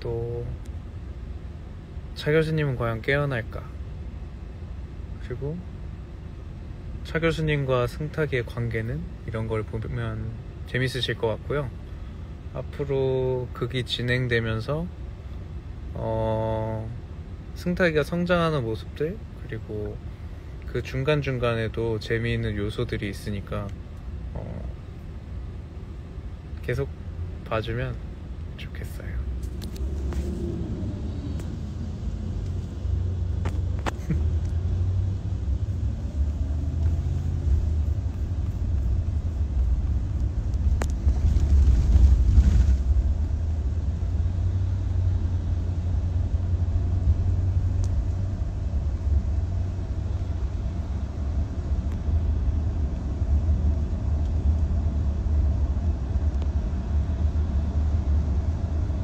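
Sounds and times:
car cabin rumble: 18.0s - 59.0s.

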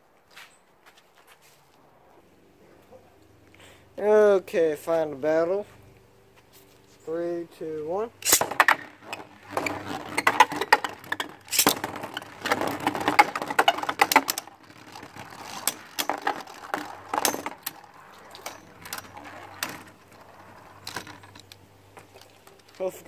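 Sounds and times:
spinning tops clashing: 8.2s - 12.5s
spinning tops whirring: 8.2s - 21.4s.

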